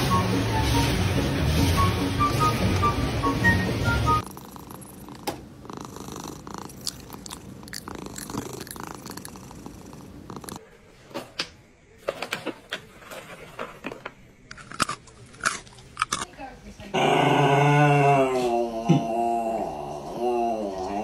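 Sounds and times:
cat purring: 0:04.1 - 0:10.6.

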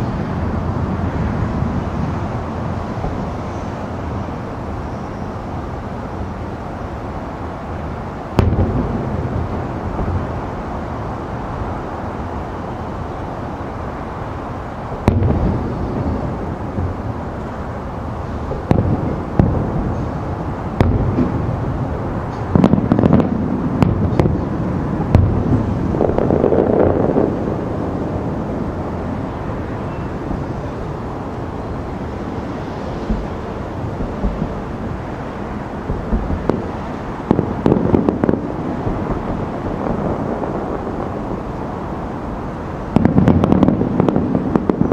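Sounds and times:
steady background rumble: 0:00.0 - 0:44.9
distant firework shells bursting: 0:15.0 - 0:16.2, 0:22.4 - 0:27.3, 0:42.9 - 0:44.9.

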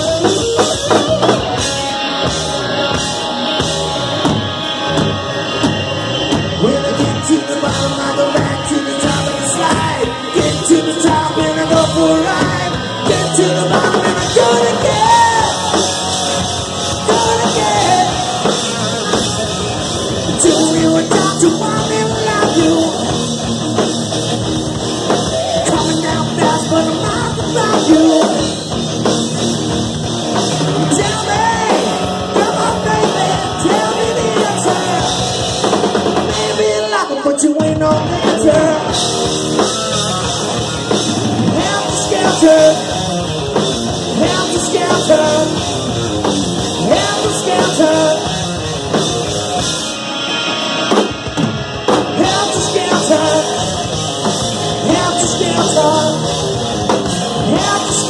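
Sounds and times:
distorted electric guitars: 0:00.0 - 0:58.0
drum kit: 0:00.0 - 0:58.0
person singing: 0:06.6 - 0:19.5, 0:20.2 - 0:23.3, 0:25.1 - 0:28.6, 0:30.8 - 0:40.9, 0:41.5 - 0:43.1, 0:44.1 - 0:46.0, 0:46.7 - 0:48.5, 0:52.1 - 0:54.0, 0:54.6 - 0:58.0.

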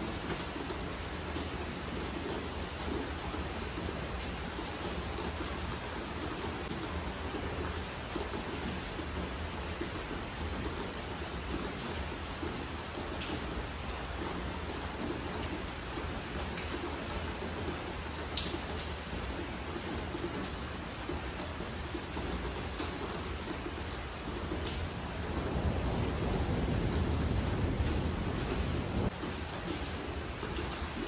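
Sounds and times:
steady rain hiss: 0:00.0 - 0:31.0
faint drip ticks: 0:18.3 - 0:18.6.

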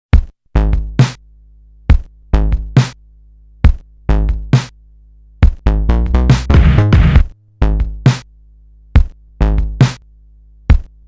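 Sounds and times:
drum machine hits: 0:00.1 - 0:01.2, 0:01.9 - 0:03.0, 0:03.6 - 0:04.8, 0:05.4 - 0:08.3, 0:09.0 - 0:10.0, 0:10.7 - 0:11.0
low bass: 0:05.5 - 0:08.1.

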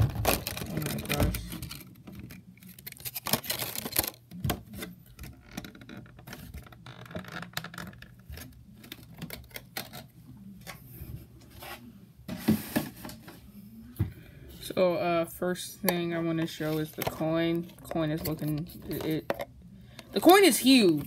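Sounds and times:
plastic tray crinkling: 0:00.0 - 0:10.1.

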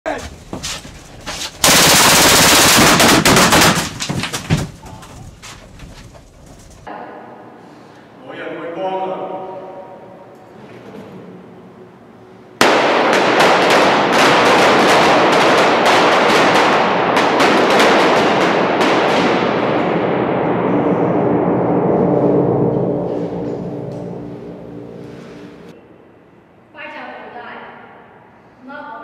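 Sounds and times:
blank gunshots echoing: 0:01.6 - 0:04.8, 0:12.6 - 0:20.6.

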